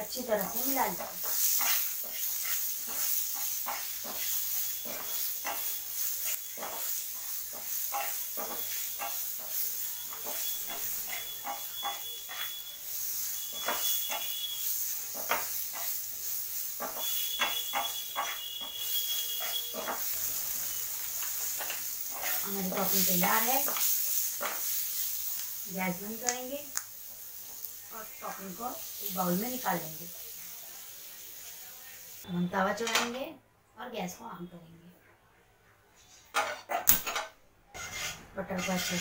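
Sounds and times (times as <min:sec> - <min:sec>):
vegetables sizzling in a pan: 0:00.0 - 0:33.2, 0:37.7 - 0:39.0
spatula scraping a pan: 0:00.4 - 0:26.1, 0:37.7 - 0:39.0.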